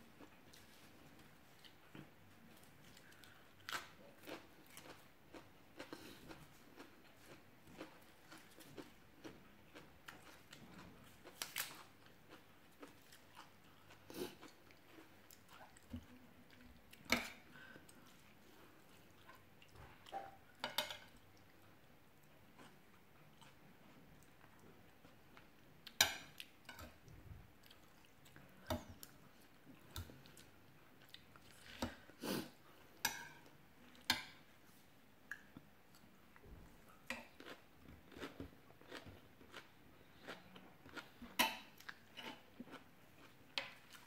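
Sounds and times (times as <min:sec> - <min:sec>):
person chewing raw vegetables: 0:00.1 - 0:20.3, 0:35.3 - 0:44.0.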